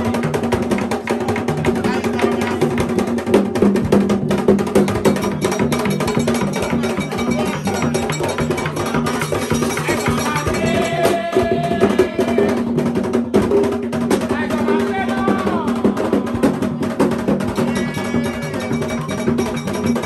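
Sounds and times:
drums: 0.0s - 20.0s
sharp clacking percussion: 0.0s - 20.0s
held high note: 17.6s - 20.0s.

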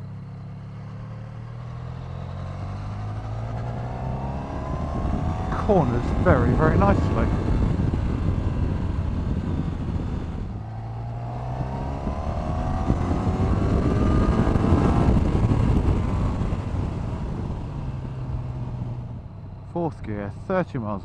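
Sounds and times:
motorcycle engine accelerating: 0.0s - 21.0s
wind rush on microphone: 3.1s - 19.6s.

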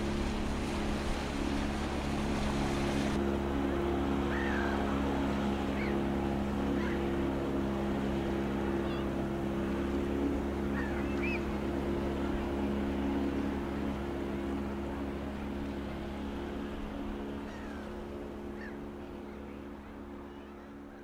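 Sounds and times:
boat motor droning: 0.0s - 21.0s.

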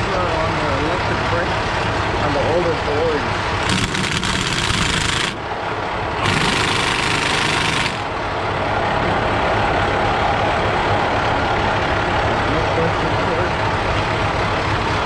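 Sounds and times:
cordless impact wrench: 3.6s - 5.4s, 6.2s - 8.1s.

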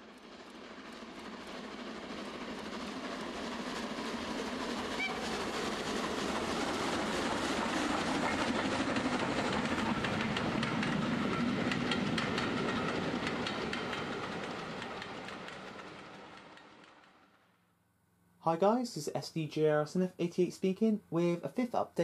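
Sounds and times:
train wheels clicking on rails: 0.0s - 17.4s.

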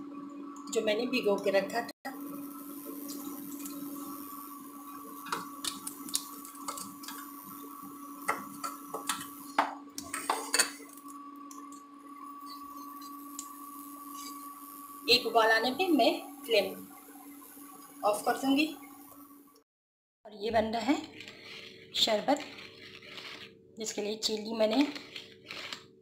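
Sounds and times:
steady hum: 0.0s - 19.6s
liquid poured and stirred: 2.1s - 15.1s, 20.8s - 23.6s, 24.2s - 26.0s.

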